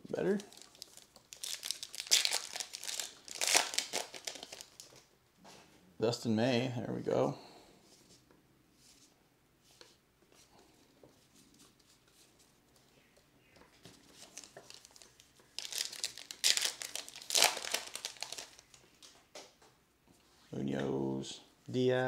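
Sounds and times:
plastic wrapper crinkling: 0.1s - 5.1s, 14.0s - 19.1s.

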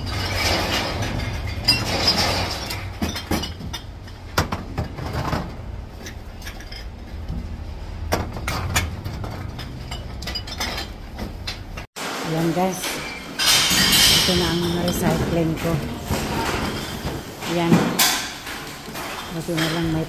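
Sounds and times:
cans and bottles clattering: 0.0s - 20.0s.

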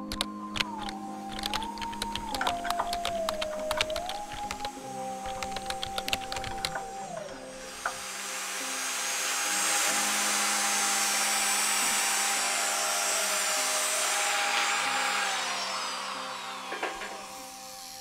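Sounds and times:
background music: 0.0s - 18.0s
drill grinding whine: 0.0s - 18.0s.

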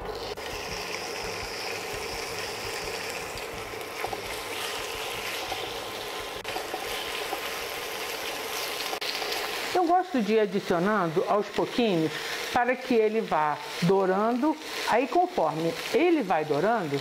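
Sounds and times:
chicken sizzling in oil: 0.0s - 17.0s.

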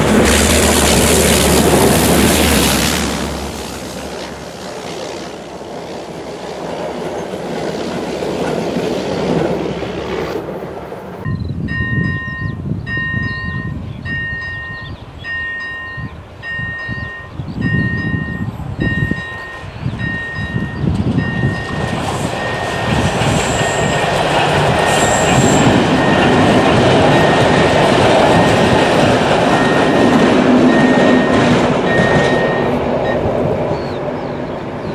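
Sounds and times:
diesel locomotive passing: 0.0s - 34.9s
wind buffeting microphone: 11.2s - 34.9s
level crossing warning tone: 11.3s - 33.5s
high wheel squeals: 11.3s - 34.4s.

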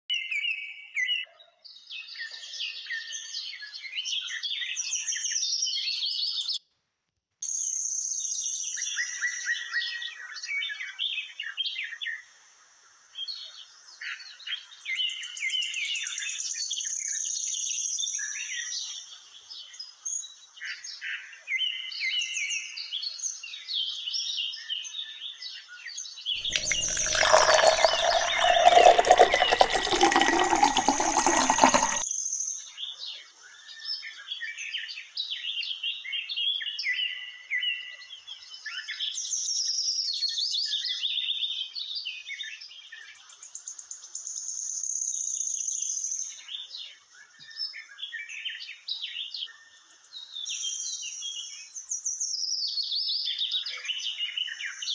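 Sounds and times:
water poured into steel pot: 26.4s - 32.0s.

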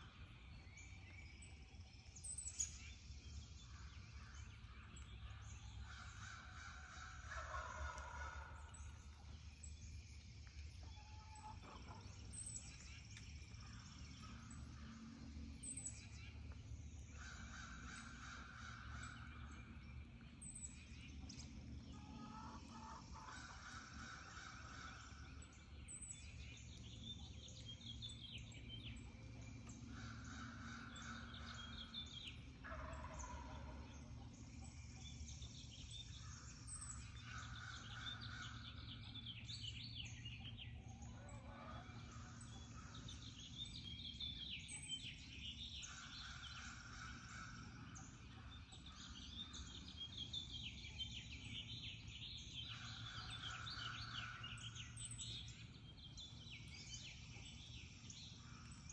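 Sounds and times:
songbirds chirping: 0.0s - 58.9s
turkeys gobbling: 5.9s - 8.7s, 22.0s - 25.0s, 32.6s - 33.9s, 41.1s - 42.9s.

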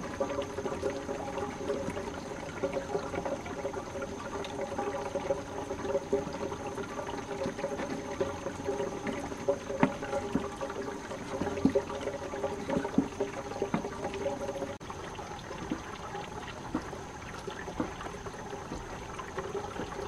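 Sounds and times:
water running: 0.0s - 20.0s.

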